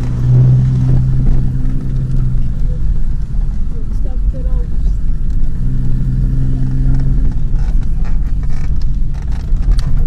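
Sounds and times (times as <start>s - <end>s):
vehicle engine and tyres rumbling: 0.0s - 10.0s
knocks and rattles over bumps: 6.7s - 10.0s.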